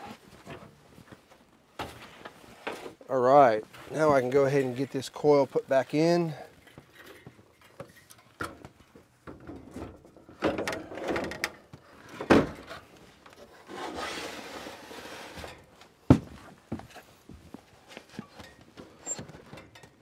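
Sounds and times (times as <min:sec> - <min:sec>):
metal scraping and rubbing: 0:13.5 - 0:15.6.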